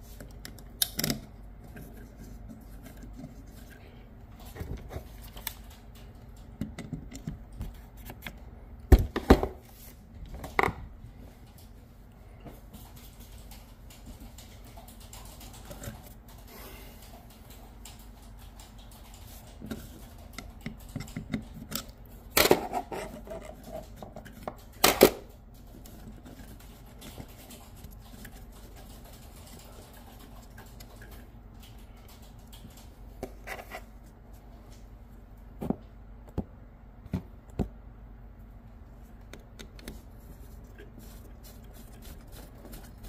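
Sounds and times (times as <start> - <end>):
clicks and knocks of handling: 0.2 - 9.6.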